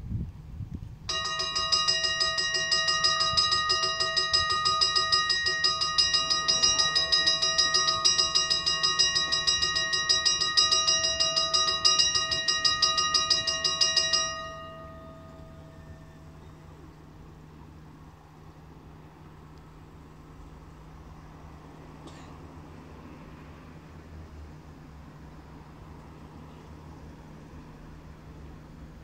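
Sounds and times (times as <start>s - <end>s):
level crossing bells ringing: 1.1s - 17.3s.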